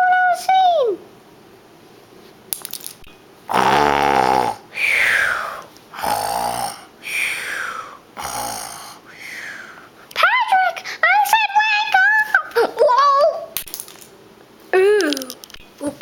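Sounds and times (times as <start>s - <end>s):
person imitating snoring: 3.5s - 9.1s.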